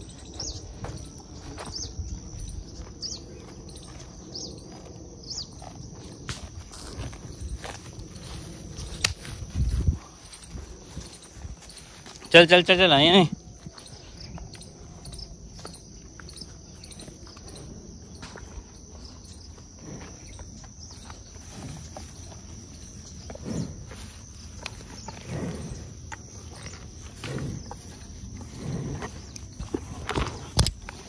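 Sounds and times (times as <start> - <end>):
water buffaloes walking: 0.0 - 31.0.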